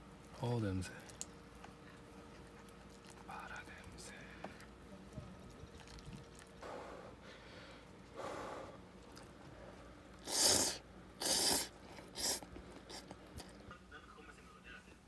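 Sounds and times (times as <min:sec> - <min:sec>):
person sniffing: 0:10.2 - 0:13.1.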